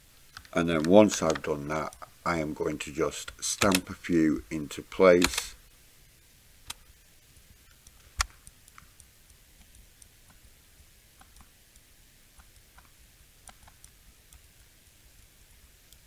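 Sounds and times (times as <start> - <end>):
computer mouse clicks: 3.3 - 3.9, 11.2 - 14.5.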